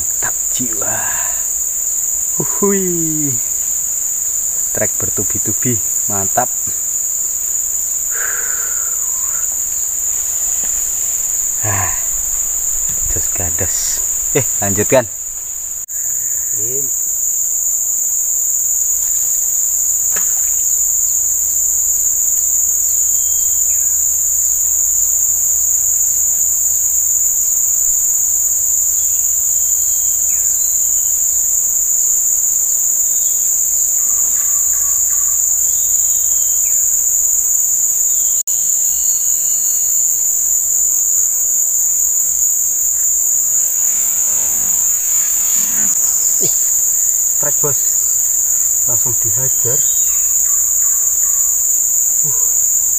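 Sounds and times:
higher hiss: 0.0 - 3.8, 7.8 - 17.1, 42.0 - 52.9
insects droning: 0.0 - 52.9.

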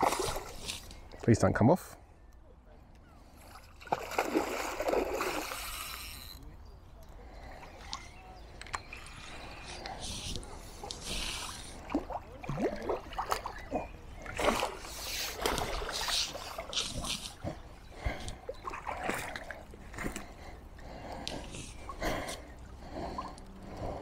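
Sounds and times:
fish splashing and thrashing: 0.0 - 1.0, 3.5 - 6.2, 8.8 - 23.6
water sloshing and dripping: 3.4 - 5.9, 8.6 - 20.5.

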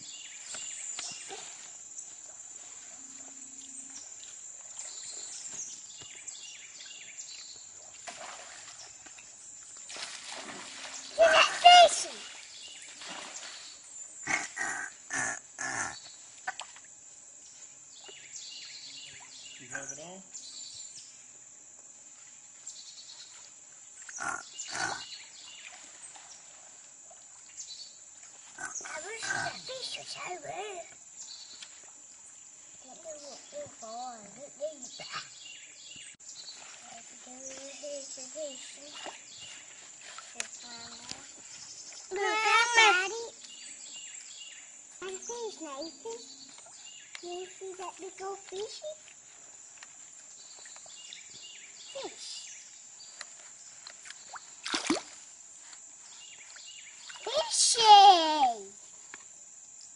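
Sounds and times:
insect drone: 0.0 - 59.9
water splashing from wading: 7.8 - 15.2, 16.2 - 17.0, 23.2 - 30.0, 36.3 - 37.6, 53.8 - 55.5.

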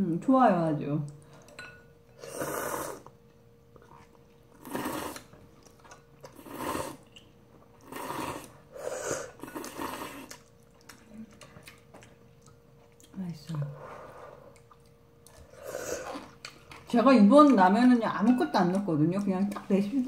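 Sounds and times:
noodles being slurped: 3.9 - 7.2, 7.8 - 10.9.

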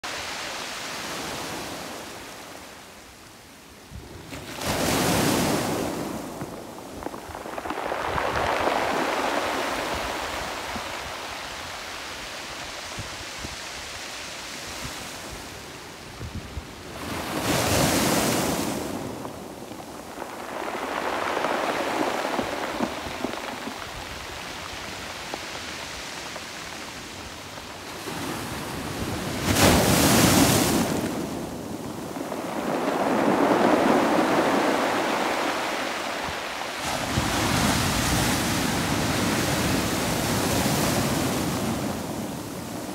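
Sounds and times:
waves breaking on pebbles: 4.3 - 14.2, 17.0 - 42.9.

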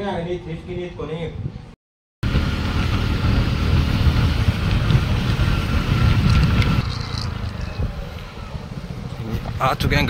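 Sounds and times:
wind buffeting microphone: 1.2 - 10.0
motorcycle engine and road rumble: 2.2 - 10.0.

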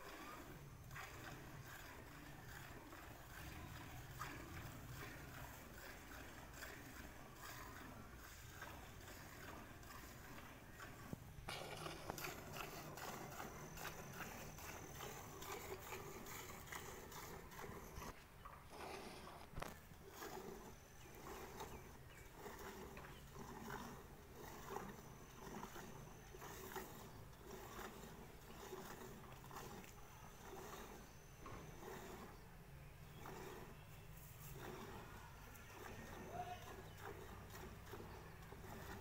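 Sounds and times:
milk squirting into steel bucket: 0.1 - 18.0.

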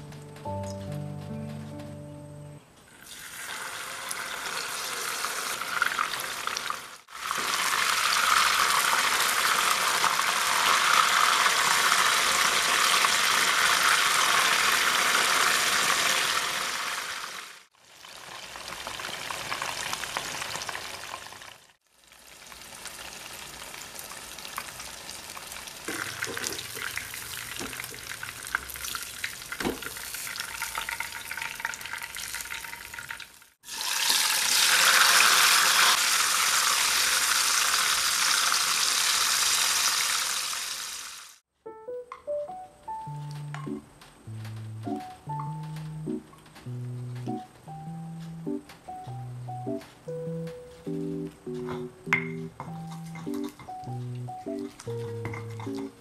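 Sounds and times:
fish sizzling in oil: 3.0 - 41.4.

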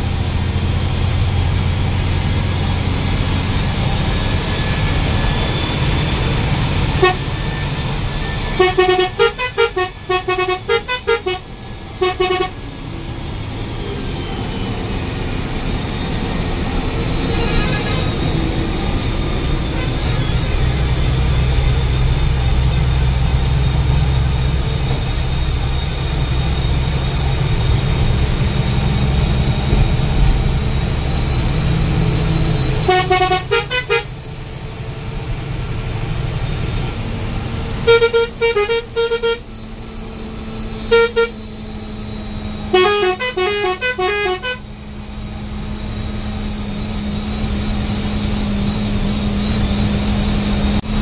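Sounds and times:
bus engine and tyres drone: 0.0 - 51.0
bus musical horn: 4.8 - 12.7, 17.1 - 22.1, 29.6 - 34.4, 37.7 - 39.8, 40.7 - 41.8, 42.6 - 44.8.

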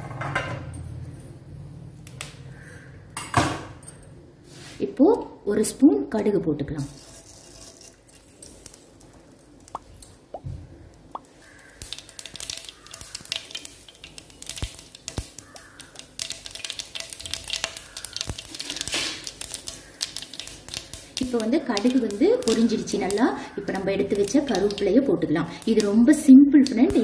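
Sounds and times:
mustard seeds sizzling and popping: 6.8 - 27.0.

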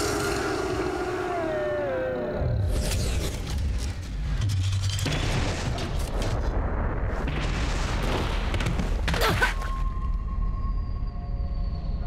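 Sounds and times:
explosions and crashing: 3.2 - 9.9.

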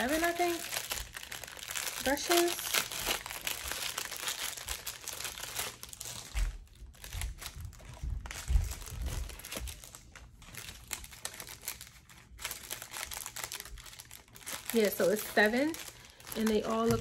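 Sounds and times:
packaging crinkling: 0.0 - 17.0
dull low knocks: 7.0 - 9.4.

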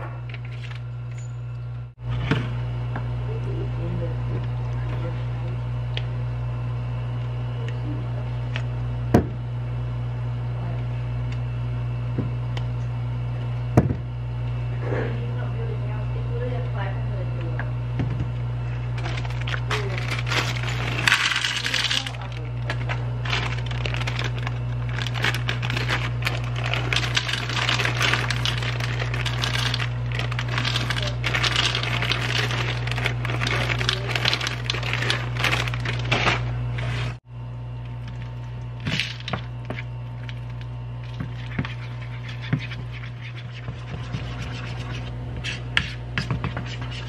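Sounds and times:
steady low hum: 0.0 - 47.0
chocolate chips pouring into bowl: 19.7 - 22.3, 23.2 - 36.2.

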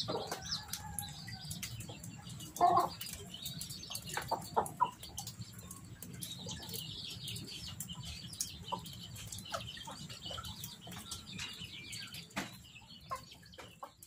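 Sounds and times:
chickens clucking: 0.0 - 14.0.

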